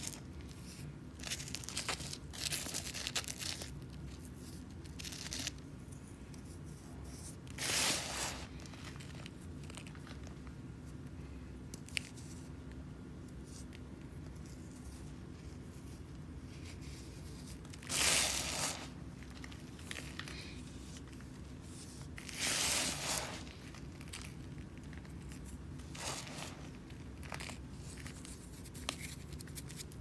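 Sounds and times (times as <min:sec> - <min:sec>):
sand crunching and pouring: 0:07.6 - 0:09.1, 0:17.8 - 0:20.0, 0:22.2 - 0:24.3, 0:25.8 - 0:27.6.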